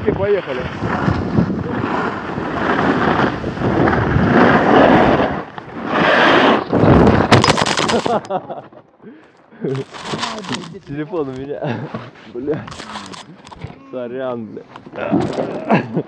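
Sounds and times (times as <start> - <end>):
wind buffeting microphone: 0.0 - 5.9.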